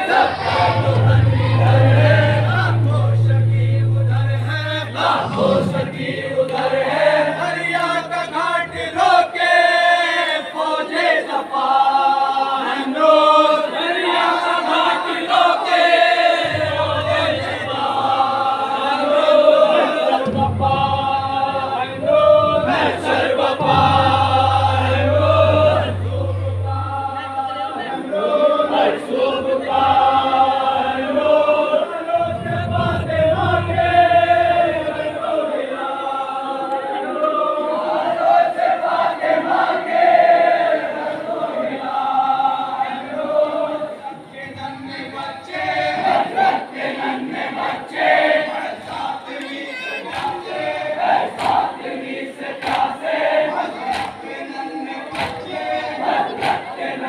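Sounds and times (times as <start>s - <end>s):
men chanting a lament: 0.0s - 57.0s
low steady hum: 0.2s - 9.6s, 20.3s - 28.2s, 32.1s - 35.3s.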